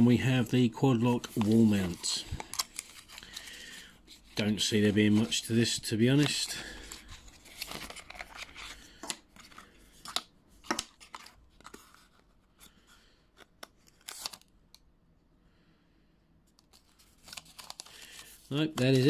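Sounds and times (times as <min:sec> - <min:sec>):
cardboard box rustling: 0:06.9 - 0:08.7.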